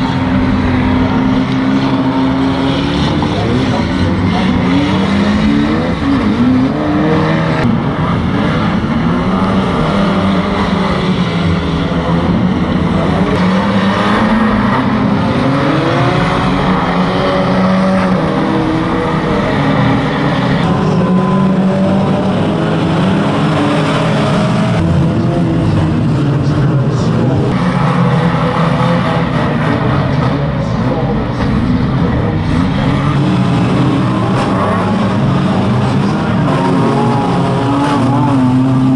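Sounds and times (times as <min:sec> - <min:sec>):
racing car engines revving: 0:00.0 - 0:38.9.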